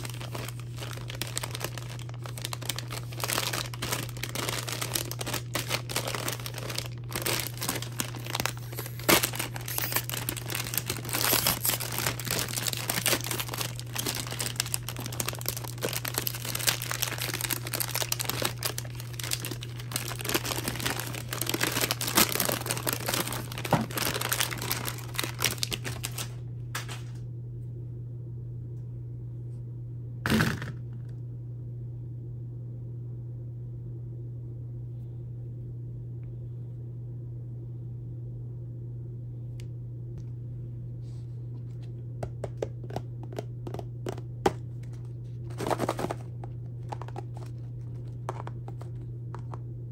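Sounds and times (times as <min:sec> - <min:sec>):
candy bag crinkling: 0:00.0 - 0:27.1, 0:42.5 - 0:49.6
steady low hum: 0:00.0 - 0:49.9.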